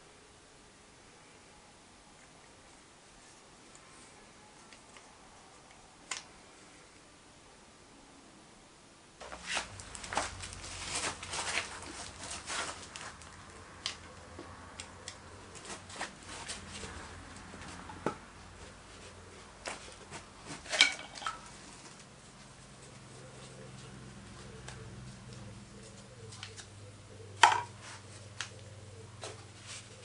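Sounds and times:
faint low hum: 0.0s - 30.0s.

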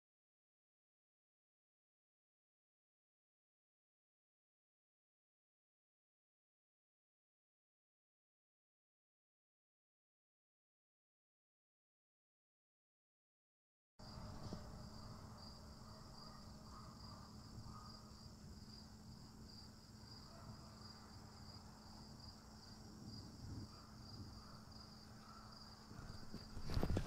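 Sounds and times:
crickets chirping: 14.0s - 27.0s.

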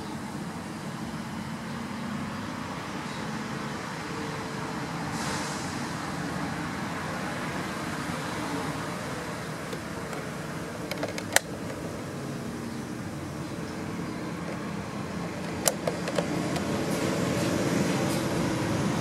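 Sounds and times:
outdoor background noise: 0.0s - 19.0s
sharp clicks: 9.7s - 12.0s, 15.3s - 16.7s.

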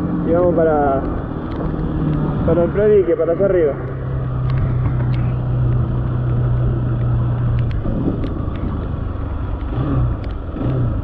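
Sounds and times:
motorcycle engine running: 0.0s - 11.0s
wind and road noise: 0.0s - 11.0s.

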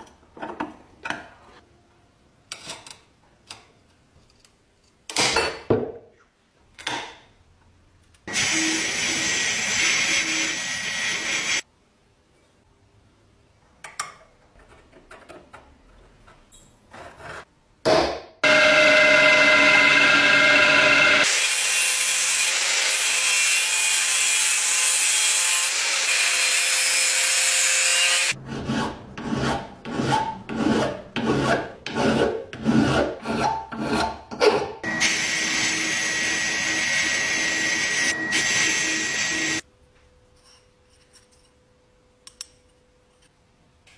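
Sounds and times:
angle grinder cutting steel: 8.3s - 11.6s, 18.4s - 28.4s, 34.8s - 39.6s.

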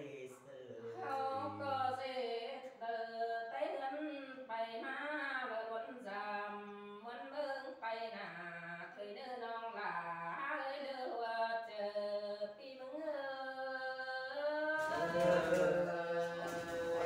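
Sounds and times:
person singing folk melody: 14.6s - 17.0s.

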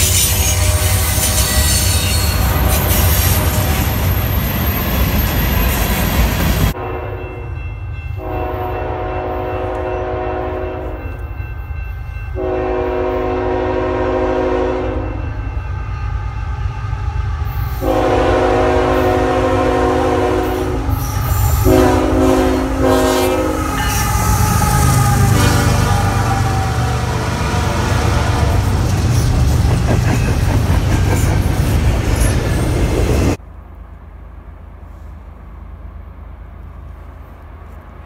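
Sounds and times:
locomotive air horn blasts: 0.0s - 3.9s, 6.7s - 7.4s, 8.2s - 11.1s, 12.4s - 16.0s, 17.6s - 28.7s
freight cars rolling on rails: 0.0s - 6.8s, 20.6s - 33.9s
low rumble of train: 0.0s - 38.0s.

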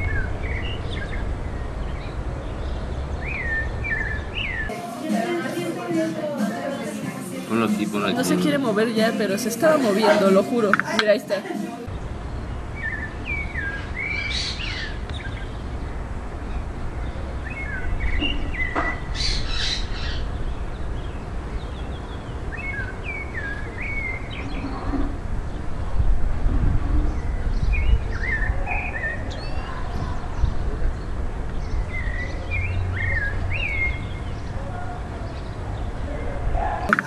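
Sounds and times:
thrush singing: 3.8s - 11.9s
low outdoor rumble: 11.8s - 36.9s.

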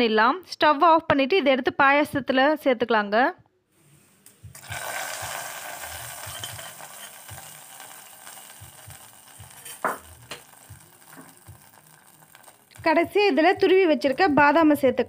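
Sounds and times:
hot ghee sizzling: 4.5s - 14.8s.

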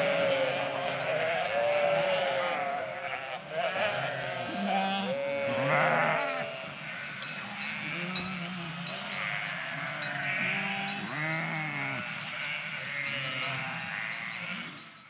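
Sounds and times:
sheep bleating: 0.0s - 14.8s
light high clinks: 6.0s - 11.4s.

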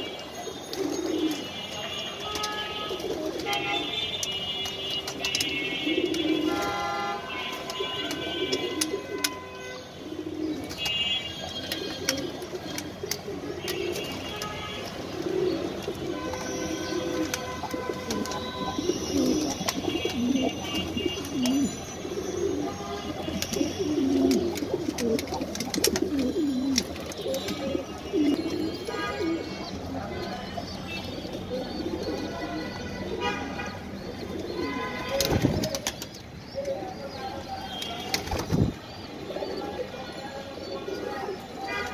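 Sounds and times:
pigeons cooing: 0.0s - 1.6s, 2.4s - 4.0s, 5.0s - 37.4s, 38.2s - 41.9s
beaks pecking at grain: 23.1s - 28.7s.

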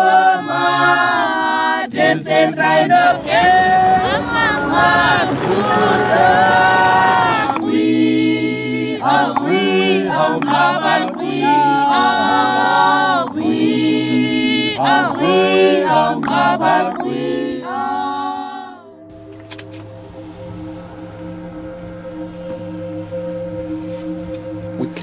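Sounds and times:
group singing a cappella: 0.0s - 19.1s.

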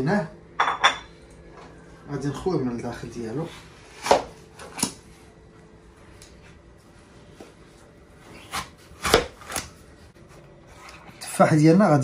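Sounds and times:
knife coring apple: 8.3s - 9.8s.

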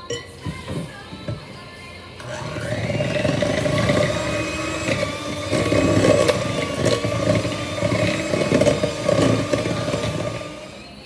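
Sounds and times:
beaters whipping butter in bowl: 2.2s - 11.0s
electric hand mixer motor running: 2.2s - 11.0s.

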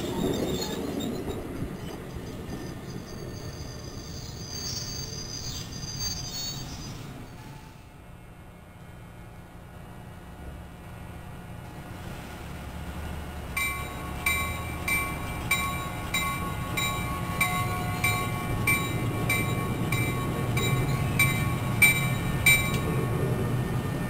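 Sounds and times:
train low rumble: 0.0s - 24.0s
bell striking: 13.6s - 22.9s.

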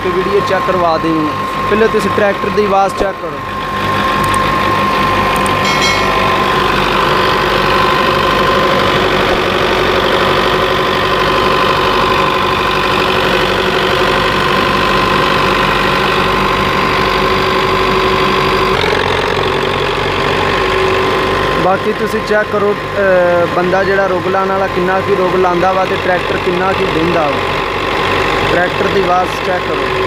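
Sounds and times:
steady high whine: 3.0s - 12.7s
diesel tractor engine running: 6.5s - 30.0s.

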